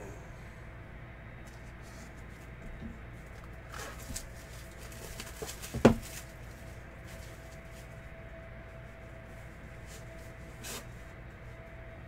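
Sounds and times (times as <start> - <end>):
cardboard box rustling and tapping: 3.9 - 6.3
box knocking on a table: 5.7 - 6.0.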